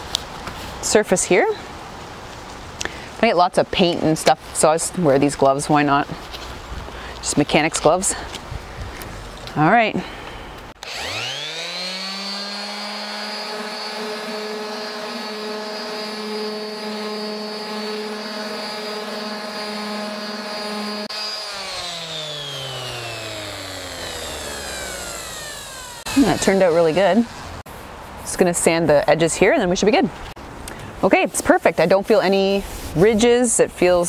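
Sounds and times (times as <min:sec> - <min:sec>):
electric sander whining: 0:10.7 - 0:27.6.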